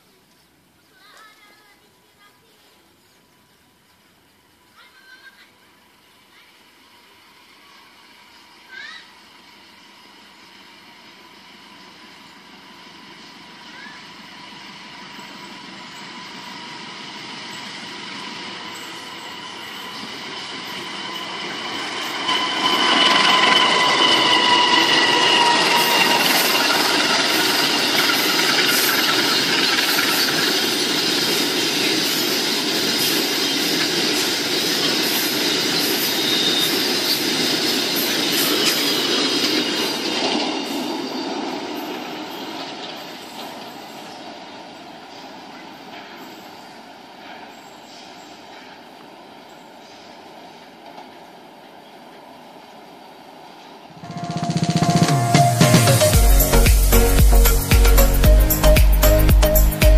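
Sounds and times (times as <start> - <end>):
freight train passing: 0.0 - 59.9
high-pitched whine: 8.2 - 42.9, 53.9 - 59.9
wheels clicking on rail joints: 8.7 - 52.6.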